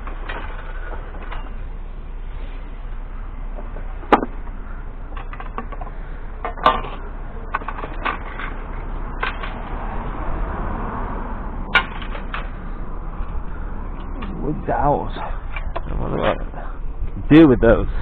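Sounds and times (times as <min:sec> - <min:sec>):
sharp clacks of junk: 0:00.0 - 0:01.6, 0:03.6 - 0:09.7, 0:11.7 - 0:12.6
junk knocking and rattling: 0:03.5 - 0:09.8, 0:11.7 - 0:17.2.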